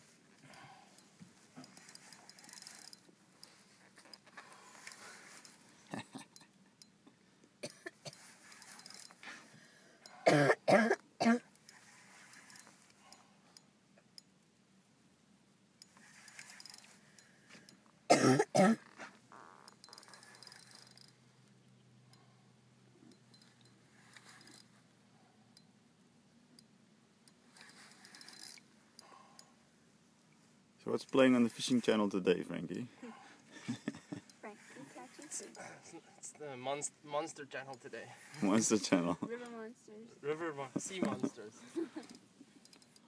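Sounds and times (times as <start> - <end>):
person coughing: 7.6 - 8.2, 10.2 - 11.5, 18.1 - 18.8.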